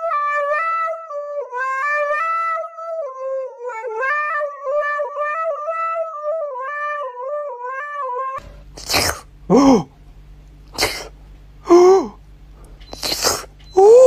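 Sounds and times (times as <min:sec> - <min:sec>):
dog howling into microphone: 0:00.0 - 0:08.4.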